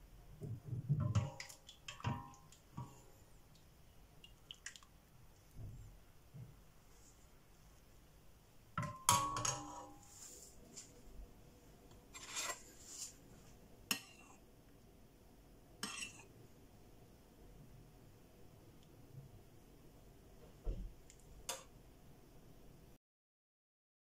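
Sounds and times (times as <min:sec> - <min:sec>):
spoon clinking on ceramic bowl: 0:08.8 - 0:10.0.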